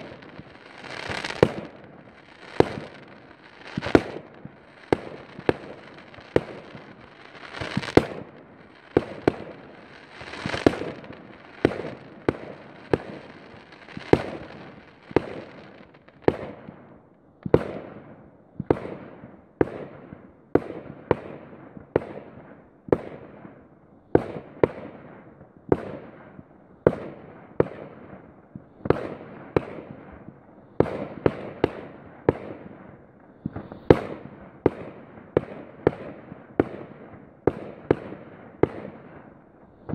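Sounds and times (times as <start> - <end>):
fireworks bangs: 0.0 - 16.7.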